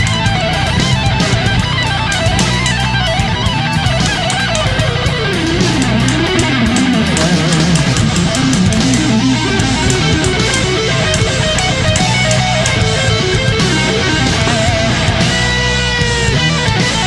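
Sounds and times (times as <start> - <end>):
rock music with electric guitar: 0.0 - 17.0.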